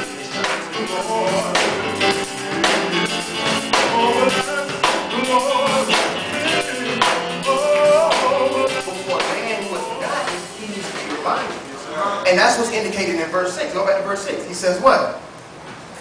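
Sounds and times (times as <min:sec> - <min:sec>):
drum kit beat: 0:00.0 - 0:11.8
gospel choir singing: 0:00.0 - 0:12.2
keyboard: 0:00.0 - 0:14.2.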